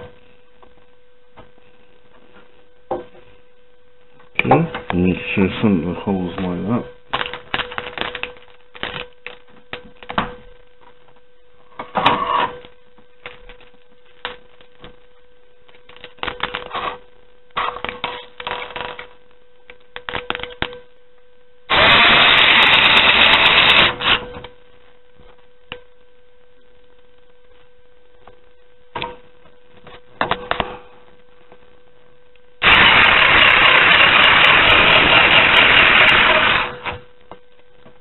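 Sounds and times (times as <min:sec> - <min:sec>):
faint steady hum: 0:00.0 - 0:38.0
loud noise: 0:21.7 - 0:24.3, 0:32.6 - 0:37.0.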